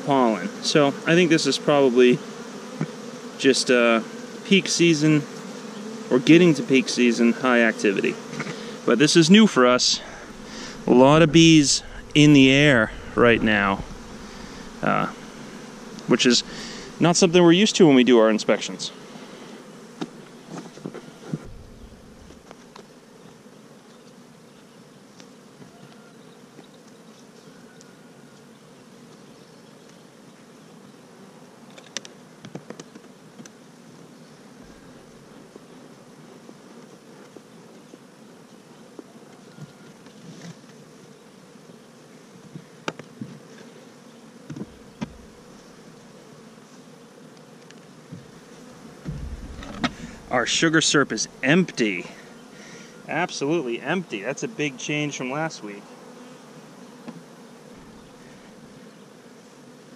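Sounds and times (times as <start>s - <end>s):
bees buzzing: 0.0s - 25.6s, 34.2s - 37.1s, 40.6s - 59.9s
hive cover knocks: 10.0s - 17.0s, 21.3s - 22.6s, 44.5s - 45.5s, 49.0s - 51.5s
soft low thump: 10.0s - 17.0s, 21.4s - 22.5s, 44.5s - 45.4s, 49.0s - 51.5s, 57.8s - 58.3s.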